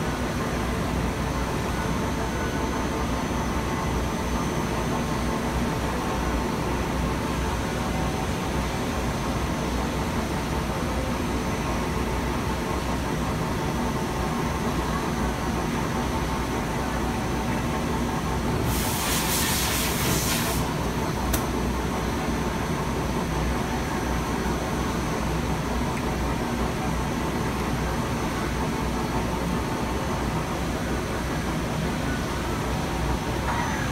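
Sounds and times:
machinery humming: 0.0s - 33.9s
hiss: 18.6s - 20.8s.

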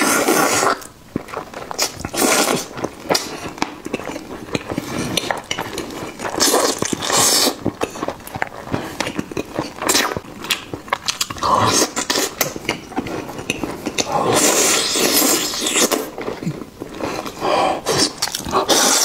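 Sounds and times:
wet chewing and slurping: 0.0s - 19.0s.

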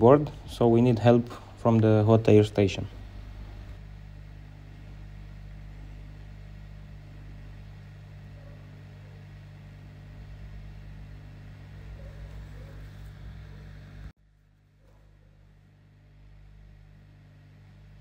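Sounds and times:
hot air station fan hiss: 0.0s - 14.1s
low hum: 0.0s - 18.0s.

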